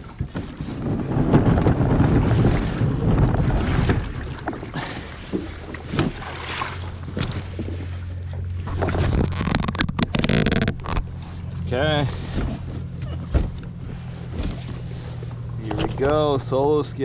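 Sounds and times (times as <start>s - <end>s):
wind buffeting microphone: 0.0s - 7.8s
steady low hum: 1.7s - 17.0s
knocks and clicks of gear: 7.0s - 11.3s, 12.3s - 16.4s.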